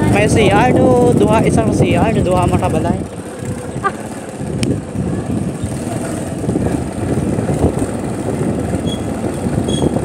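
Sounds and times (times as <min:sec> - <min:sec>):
road noise rumbling: 0:00.0 - 0:10.0
vehicle engine running: 0:00.0 - 0:10.0.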